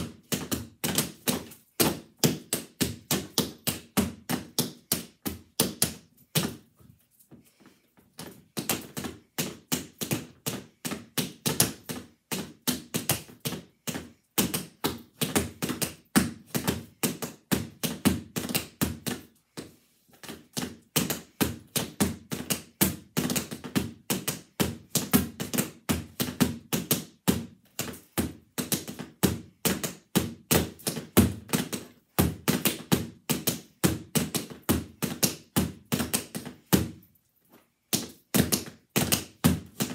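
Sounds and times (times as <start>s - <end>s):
tap shoes tapping on board: 0.0s - 6.6s, 20.2s - 36.9s, 37.9s - 39.9s.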